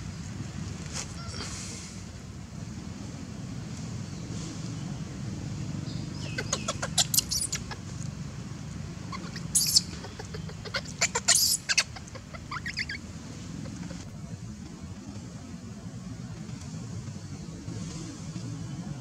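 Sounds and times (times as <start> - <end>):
baby monkey squeaking: 6.2 - 7.9, 9.1 - 14.1.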